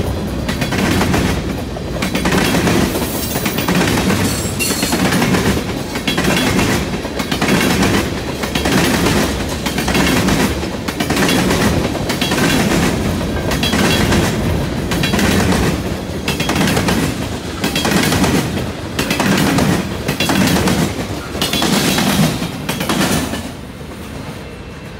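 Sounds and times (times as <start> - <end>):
train wheels clattering over rail joints: 0.0 - 23.6.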